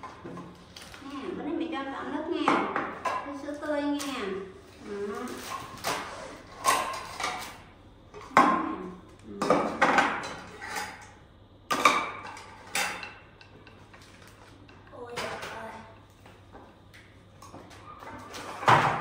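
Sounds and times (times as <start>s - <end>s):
dishes and cutlery clinking: 5.4s - 7.6s, 9.4s - 14.0s.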